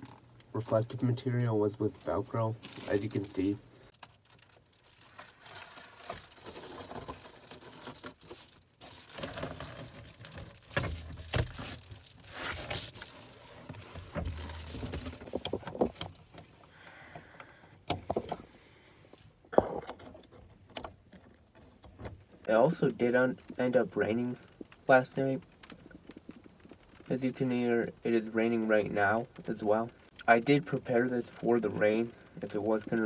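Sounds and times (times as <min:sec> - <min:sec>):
foil insulation crinkling: 0:02.0 - 0:16.3.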